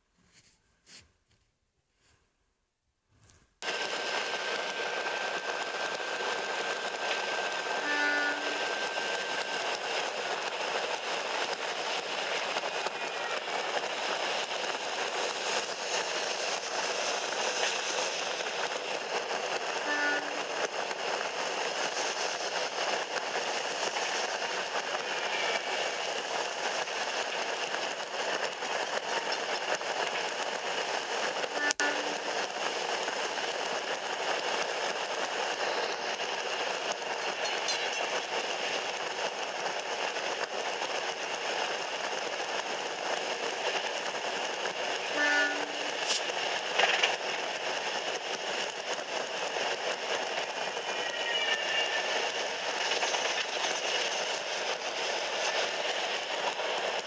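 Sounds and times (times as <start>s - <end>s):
diesel locomotive running: 3.6s - 57.0s
train horn: 4.7s - 9.8s, 12.7s - 14.0s, 19.8s - 20.7s, 25.0s - 26.0s, 31.5s - 32.5s, 45.0s - 46.3s, 50.8s - 52.4s.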